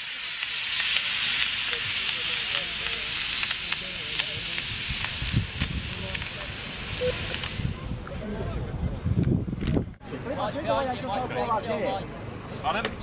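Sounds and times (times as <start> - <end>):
rocket motor rushing hiss: 0.0 - 8.2.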